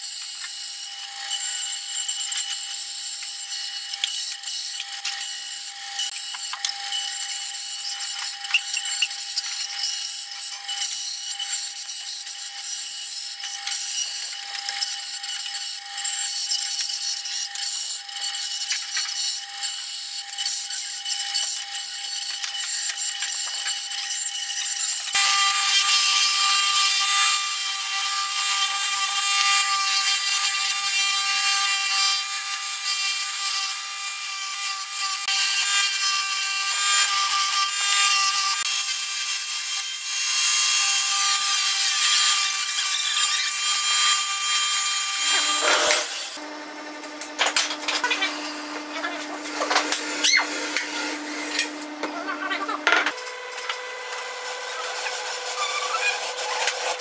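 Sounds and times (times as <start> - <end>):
bandsaw cutting wood: 0.0 - 57.0
sanding drum rubbing wood: 54.1 - 57.0.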